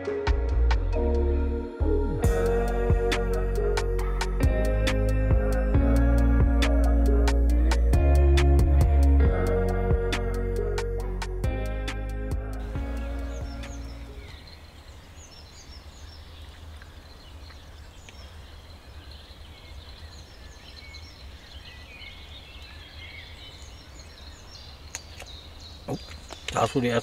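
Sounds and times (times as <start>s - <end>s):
music: 0.0s - 14.2s
small birds chirping: 12.6s - 27.0s.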